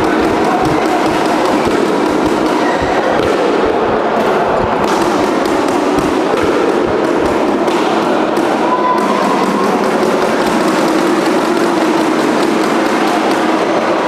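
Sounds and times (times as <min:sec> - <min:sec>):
footsteps on courts: 0:00.0 - 0:08.6
thuds and taps from play: 0:00.0 - 0:13.8
murmur of voices: 0:00.0 - 0:14.0.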